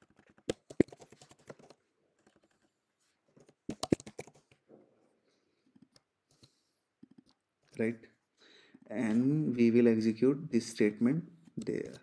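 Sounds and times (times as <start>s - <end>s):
typing on computer keyboard: 0.0s - 2.4s, 3.7s - 4.6s.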